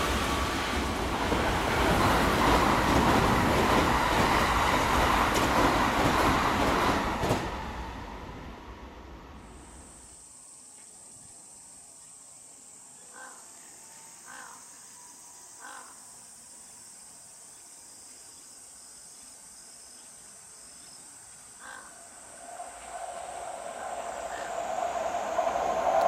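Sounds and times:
electric train running: 0:00.0 - 0:08.0, 0:22.0 - 0:26.0
steady high hiss: 0:08.8 - 0:26.0
crows cawing: 0:14.3 - 0:14.6, 0:21.6 - 0:22.0, 0:23.7 - 0:24.6.

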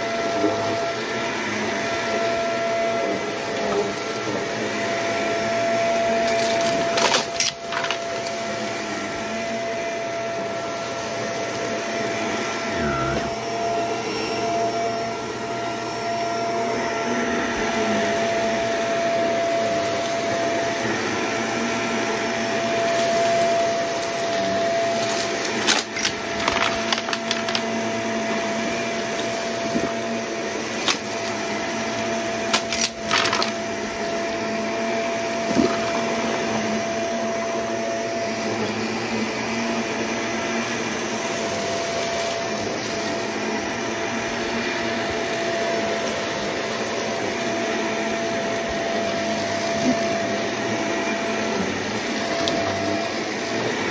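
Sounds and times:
vacuum cleaner motor whine: 0:00.0 - 0:53.9
debris crackling in vacuum: 0:02.2 - 0:12.3, 0:22.4 - 0:37.4.

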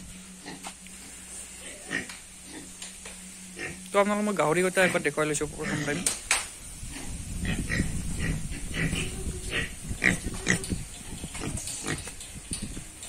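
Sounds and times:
pigs grunting: 0:01.6 - 0:02.7, 0:04.8 - 0:06.2, 0:06.9 - 0:12.2.

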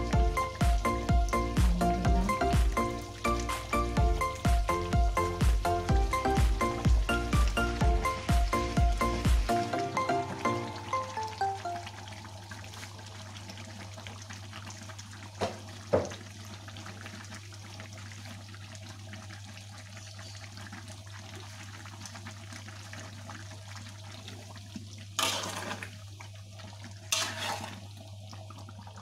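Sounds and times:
gravy bubbling in a wok: 0:00.0 - 0:29.0
spatula scraping a wok: 0:25.2 - 0:25.9, 0:27.1 - 0:27.8.

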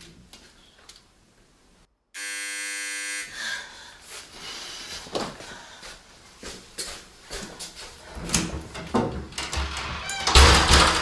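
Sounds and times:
doorbell buzzer: 0:02.2 - 0:03.4.

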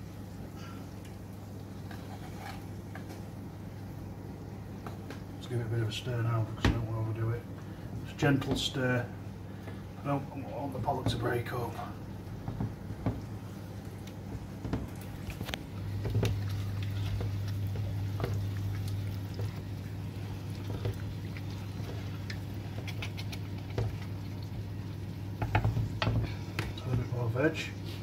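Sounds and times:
spoon stirring in saucepan: 0:01.6 - 0:03.3, 0:12.6 - 0:26.9.

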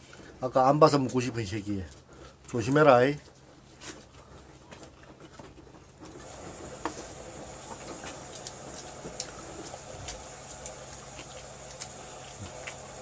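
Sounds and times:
low electrical hum: 0:00.0 - 0:13.0
people chewing: 0:01.8 - 0:13.0
mouth clicks and smacks: 0:07.7 - 0:12.9.

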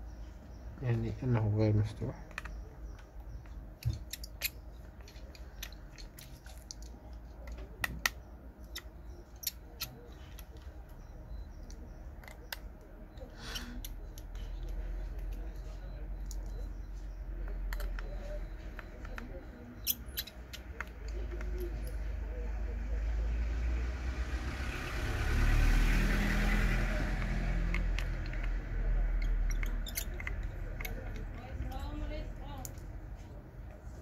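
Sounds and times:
small tools clicking: 0:02.2 - 0:16.7, 0:17.4 - 0:22.1, 0:25.9 - 0:32.9.

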